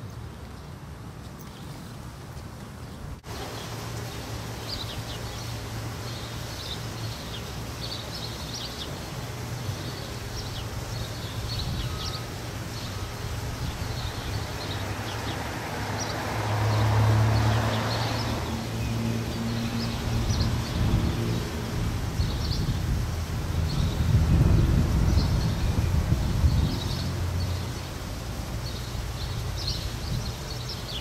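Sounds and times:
small birds chirping: 3.2 - 16.3, 22.1 - 31.0.

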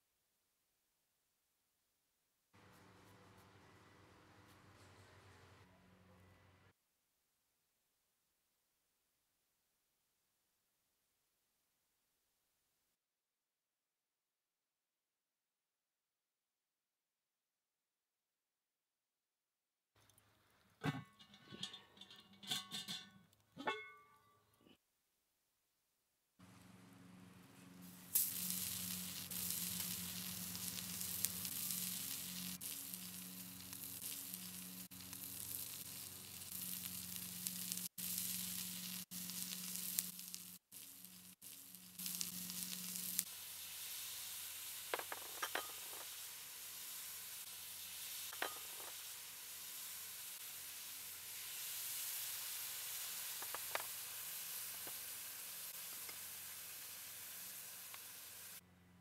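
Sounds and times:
oil and vegetables sizzling: 26.6 - 58.6.

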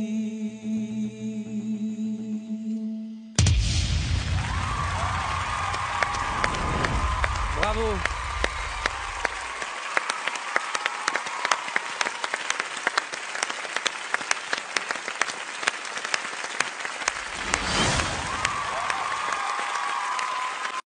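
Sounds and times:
rushing noise: 3.4 - 9.6, 17.0 - 19.4
audience applauding: 4.3 - 20.9.

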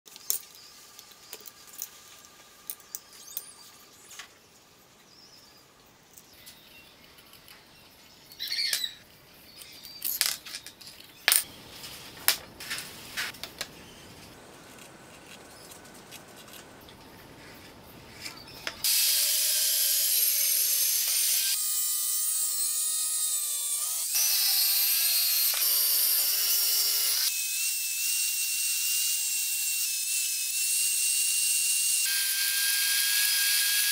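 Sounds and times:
angle grinder cutting steel: 18.4 - 33.9.

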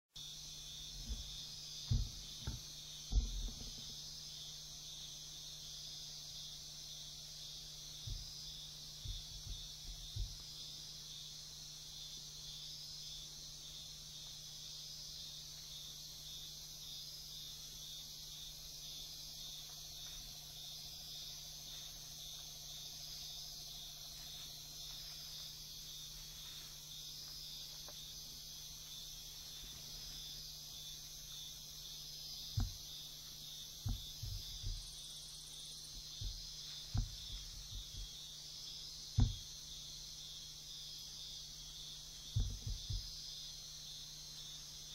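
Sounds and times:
night insects chorus: 0.2 - 44.9
dull knocks: 1.0 - 4.0, 8.0 - 8.3, 9.0 - 10.5, 32.5 - 32.8, 33.8 - 34.9, 36.0 - 38.2, 39.2 - 39.5, 42.3 - 43.1.

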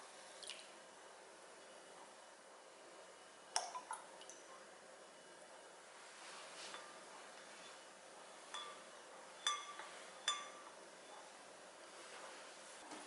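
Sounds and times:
liquid stirred in glass bowl: 6.7 - 11.3
spoon knocking against glass: 8.5 - 8.8, 9.4 - 10.7.

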